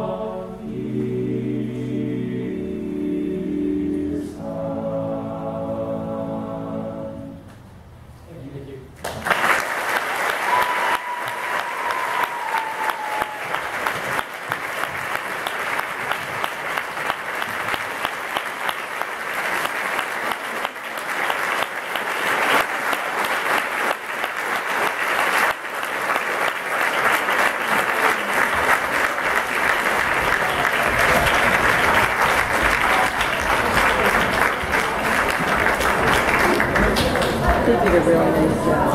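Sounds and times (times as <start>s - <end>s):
a cappella singing: 0.0s - 7.5s
audience clapping and cheering: 9.0s - 38.9s.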